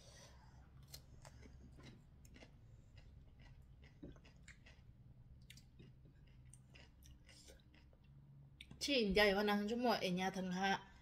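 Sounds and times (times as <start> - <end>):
faint chewing: 0.0 - 8.8.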